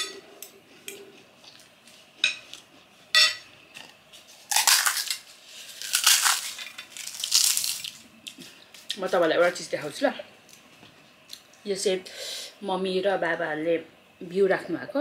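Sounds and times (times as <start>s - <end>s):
fried snack crunching: 4.4s - 9.0s.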